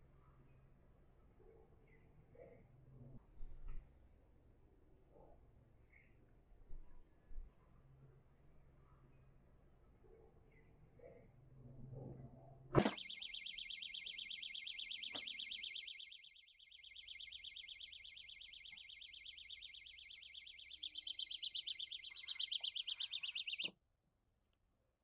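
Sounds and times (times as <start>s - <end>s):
rapidly pulsing alarm beep: 12.8s - 23.7s.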